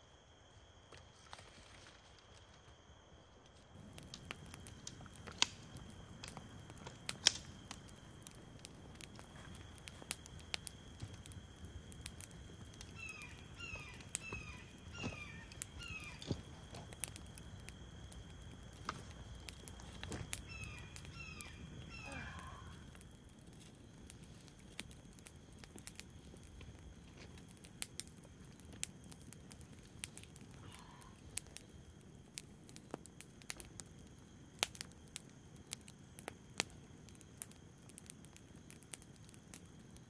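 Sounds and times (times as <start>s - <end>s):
clicks and crackles of footsteps: 3.4s - 11.4s, 14.1s - 17.5s, 18.2s - 20.5s, 22.9s - 30.5s
bird calling falling notes: 13.0s - 16.4s, 20.3s - 23.0s.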